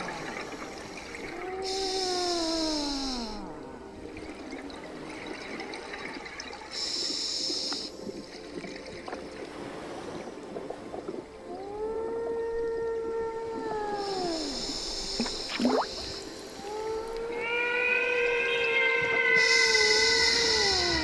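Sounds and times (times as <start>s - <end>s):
regulator inhalation hiss: 1.6s - 3.5s, 6.7s - 8.0s, 14.0s - 16.7s, 19.4s - 21.0s
exhaled bubbles gurgling: 7.9s - 17.3s
long moaning tone: 19.4s - 21.0s.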